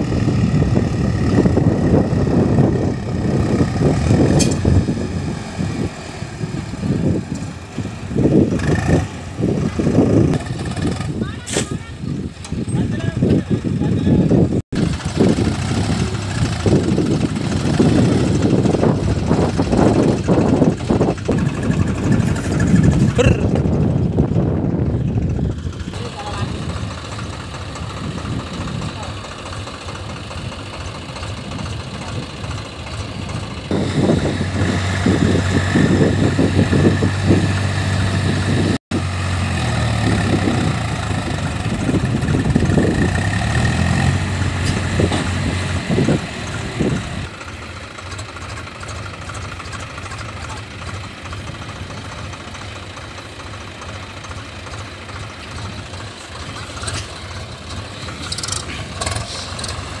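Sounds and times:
tractor diesel engines under load: 0.0s - 60.0s.

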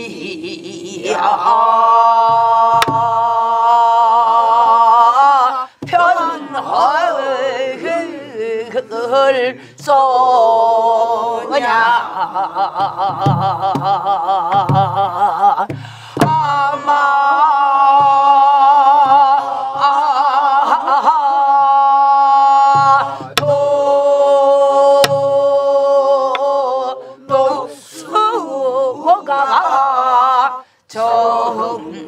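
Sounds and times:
voices singing folk song: 0.0s - 32.0s
barrel drum thumps: 2.2s - 3.3s, 5.8s - 6.1s, 12.8s - 16.6s, 22.7s - 23.7s, 25.0s - 25.4s.

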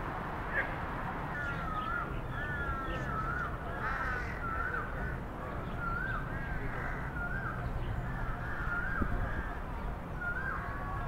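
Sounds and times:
crows calling: 1.3s - 9.7s.

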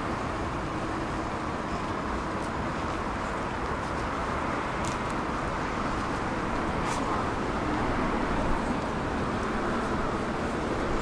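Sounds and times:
tram rumble and hiss: 0.0s - 11.0s.

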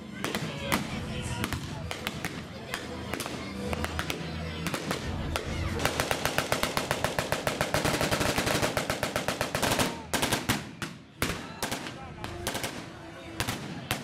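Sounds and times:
machine gun firing: 5.8s - 10.6s.

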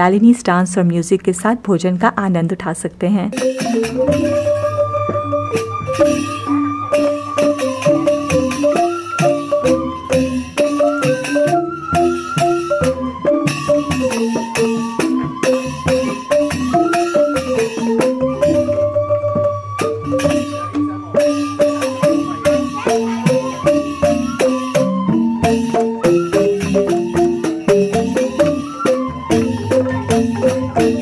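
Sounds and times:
bamboo xylophones struck with mallets: 3.3s - 31.0s
bamboo flute melody: 3.4s - 31.0s.

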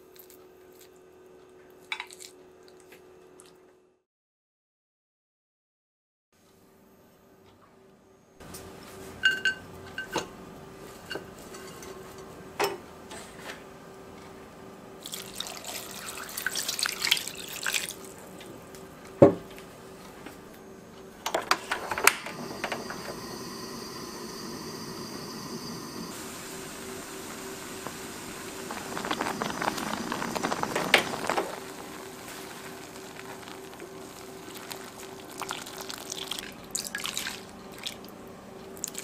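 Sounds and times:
water pouring into pot: 15.0s - 18.1s, 22.4s - 38.0s
gas burner hissing: 21.7s - 36.1s.

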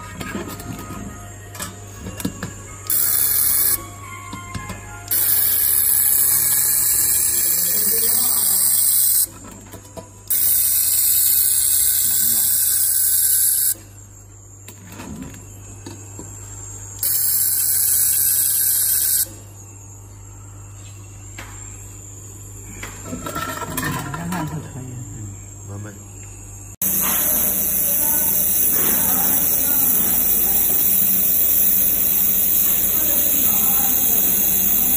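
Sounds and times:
laser welder high hiss: 2.9s - 3.8s, 5.1s - 9.3s, 10.3s - 13.8s, 17.0s - 19.4s, 26.8s - 34.9s.

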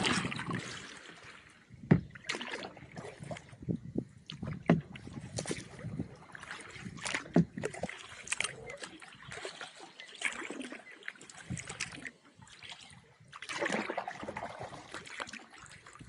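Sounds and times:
paddle strokes splashing: 0.0s - 16.0s
water trickling off paddle: 0.0s - 16.0s
thump: 1.9s - 2.2s.

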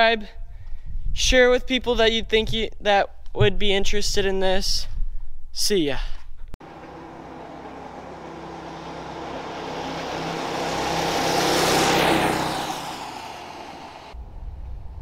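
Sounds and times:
go-kart engine driving past: 6.6s - 14.2s.

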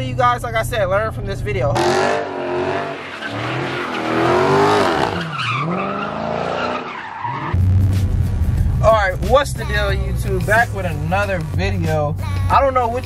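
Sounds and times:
car engine revving: 0.0s - 13.0s
tyres squealing on pavement: 2.2s - 7.6s.

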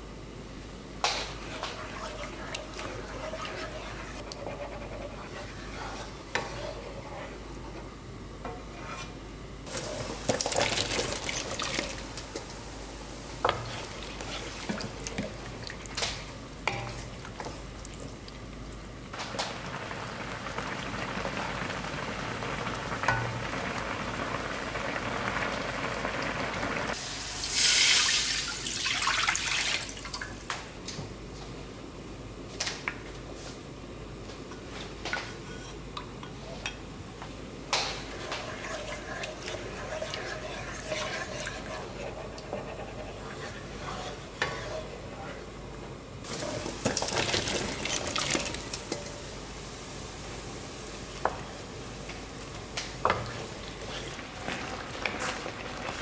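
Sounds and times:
spoon scraping pan: 1.4s - 7.4s, 8.5s - 10.2s, 38.0s - 45.3s
spoon stirring sauce: 1.4s - 7.4s, 38.1s - 45.0s.

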